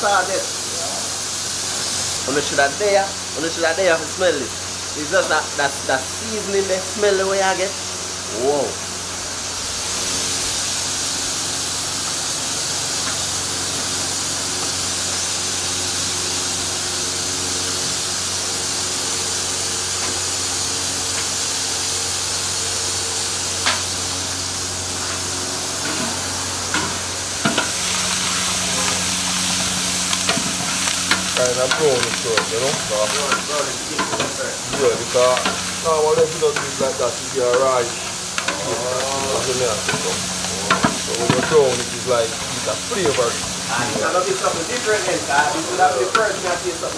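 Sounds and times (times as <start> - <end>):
chicken sizzling on a grill: 0.0 - 46.9
person speaking: 31.3 - 46.9.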